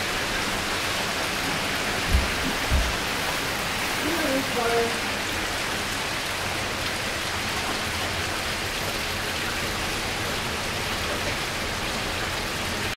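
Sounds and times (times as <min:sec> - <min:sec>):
heavy rain on pavement: 0:00.0 - 0:13.0.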